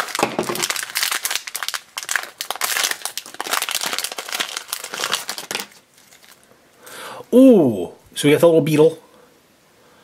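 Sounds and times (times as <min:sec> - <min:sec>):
foil wrapper crinkling: 0:00.0 - 0:06.5.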